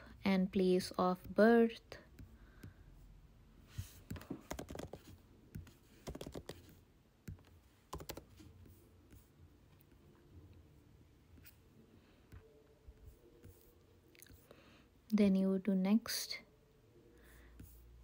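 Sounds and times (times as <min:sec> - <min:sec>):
faint keyboard typing: 0:03.7 - 0:10.6.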